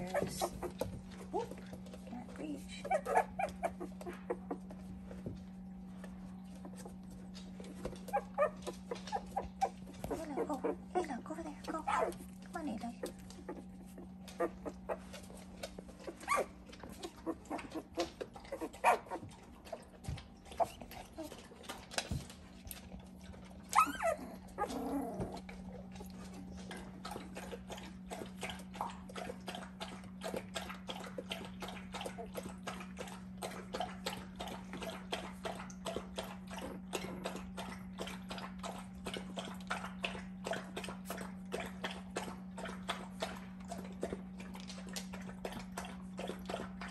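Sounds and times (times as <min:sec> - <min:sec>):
puppies whimpering: 0:00.0 - 0:01.5, 0:02.6 - 0:04.8, 0:06.5 - 0:12.4, 0:13.0 - 0:15.3, 0:16.0 - 0:19.4, 0:23.6 - 0:25.6
steady low hum: 0:00.0 - 0:46.9.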